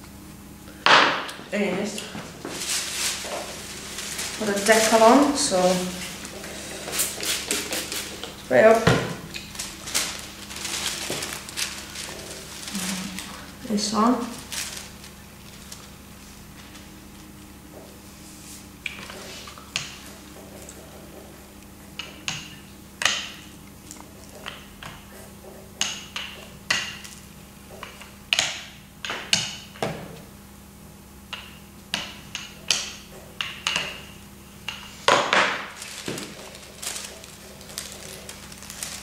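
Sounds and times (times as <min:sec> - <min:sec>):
faint steady hum: 0:00.0 - 0:39.0
paper crackling: 0:02.4 - 0:08.4, 0:09.4 - 0:17.3, 0:35.6 - 0:39.0.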